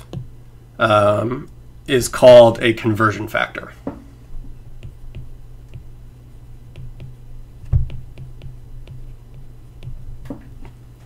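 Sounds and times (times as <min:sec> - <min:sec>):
steady low hum: 0:00.0 - 0:11.0
stylus tapping on glass screen: 0:06.7 - 0:10.5.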